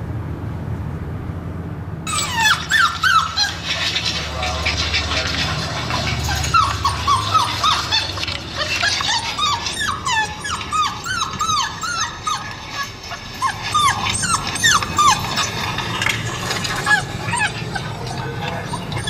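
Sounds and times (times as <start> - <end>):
puppies whimpering through speaker: 2.1 - 19.0.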